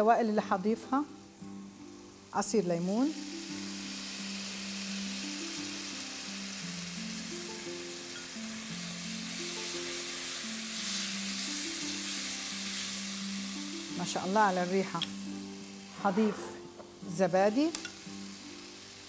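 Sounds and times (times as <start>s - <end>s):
onions sizzling in a pan: 0.0s - 19.0s
soft background music: 0.0s - 19.0s.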